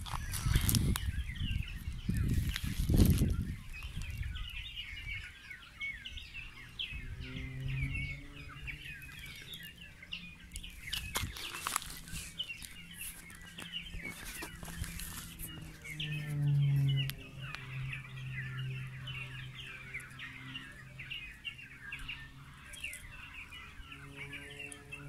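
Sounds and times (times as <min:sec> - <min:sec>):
small birds chirping: 0:00.0 - 0:25.0
steady low hum: 0:00.0 - 0:25.0.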